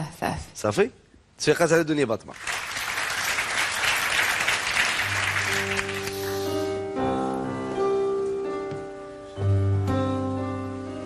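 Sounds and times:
studio audience applauding: 0:02.3 - 0:06.7.

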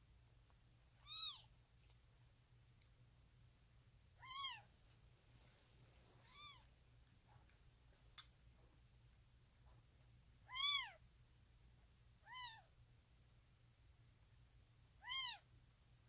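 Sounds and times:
kitten mewing: 0:01.0 - 0:01.5, 0:04.2 - 0:04.7, 0:06.2 - 0:06.7, 0:10.5 - 0:11.0, 0:12.2 - 0:12.7, 0:15.0 - 0:15.4.

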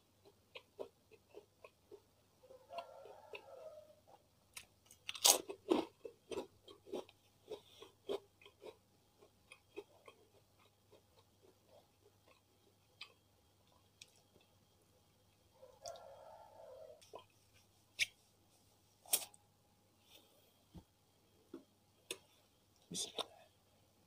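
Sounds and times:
chewing crunchy food: 0:00.0 - 0:14.6.

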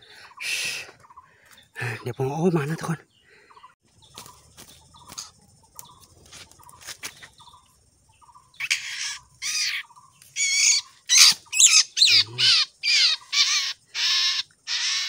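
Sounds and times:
bird distress calls: 0:08.2 - 0:15.0.

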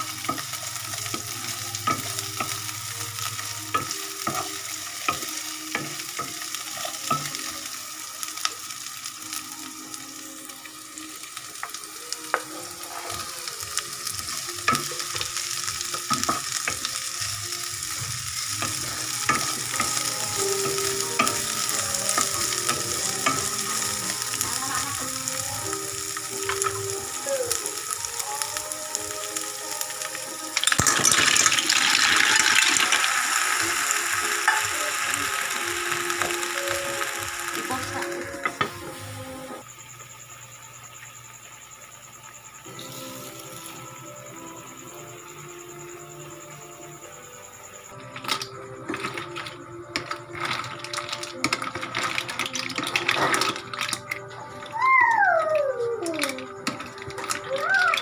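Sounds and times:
vegetables sizzling in a wok: 0:00.0 - 0:58.0
wooden spoon scraping a pan: 0:12.3 - 0:13.4.

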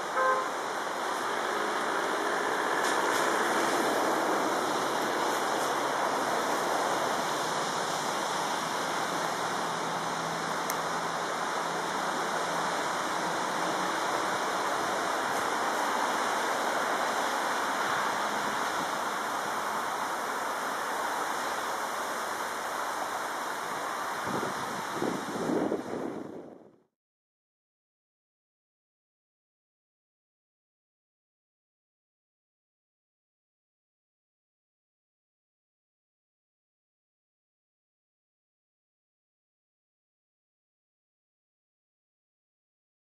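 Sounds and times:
car passing close: 0:00.0 - 0:25.7
motorway traffic roar: 0:00.0 - 0:26.8.

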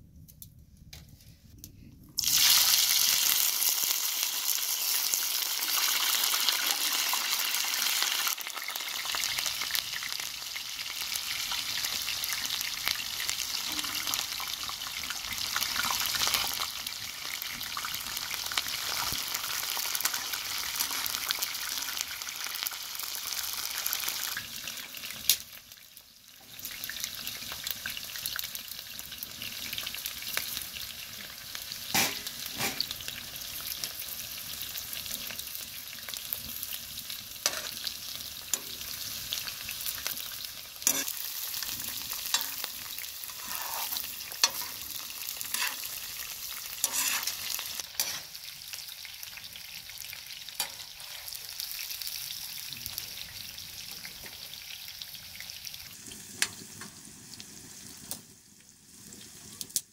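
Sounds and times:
food sizzling in a pan: 0:02.2 - 0:59.9
utensil scraping a pan: 0:37.4 - 0:37.8, 0:40.8 - 0:41.2, 0:41.8 - 0:46.0, 0:46.8 - 0:48.3.

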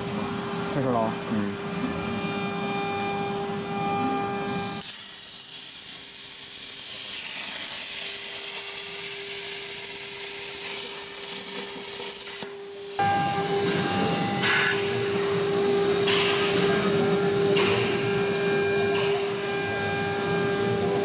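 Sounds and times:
steady machine hum: 0:00.0 - 0:04.8, 0:12.5 - 0:21.0
plasma torch hissing: 0:04.7 - 0:13.6.

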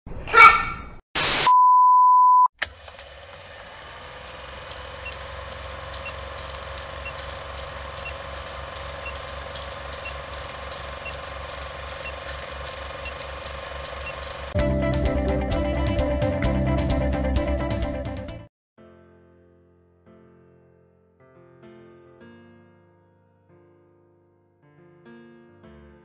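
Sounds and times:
burst of static: 0:01.2 - 0:01.6
steady beep: 0:01.5 - 0:02.5
electrical hum with fast ticking: 0:02.8 - 0:14.6.

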